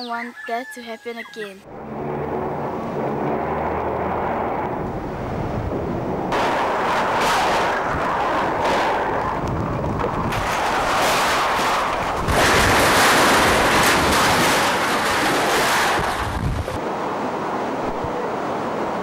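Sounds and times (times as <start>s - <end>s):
strong wind buffeting microphone: 2.1s - 19.0s
waves breaking over seawall: 6.3s - 16.8s.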